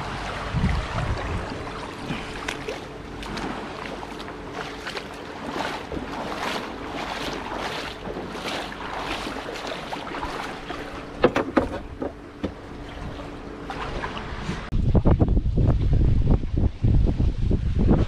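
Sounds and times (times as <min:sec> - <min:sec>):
wading through shallow water: 0:00.0 - 0:14.7
knocks on boat hull: 0:11.2 - 0:12.6.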